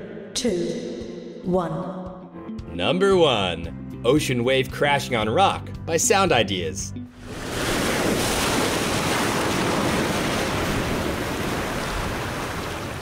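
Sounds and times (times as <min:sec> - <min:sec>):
ocean waves crashing on rocks: 0:07.2 - 0:13.0.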